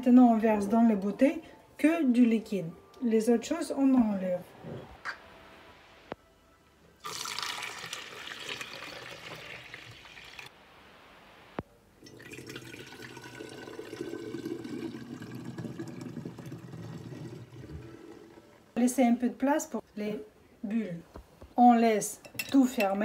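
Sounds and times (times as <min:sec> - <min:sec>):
liquid pouring into glass bottle: 0:07.0 - 0:10.5, 0:12.0 - 0:18.8
liquid pouring through sieve into jug: 0:07.0 - 0:10.5, 0:12.0 - 0:18.7.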